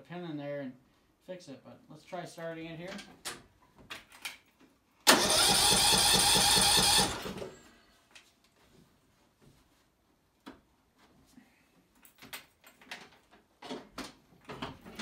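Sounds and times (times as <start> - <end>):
starter motor cranking engine: 5.1 - 7.6.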